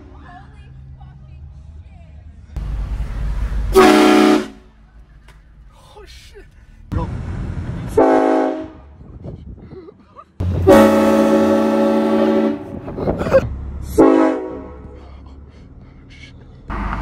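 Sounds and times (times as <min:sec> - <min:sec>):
train horn blasting: 0:03.7 - 0:04.7, 0:07.9 - 0:09.0, 0:10.4 - 0:12.9, 0:13.9 - 0:14.8.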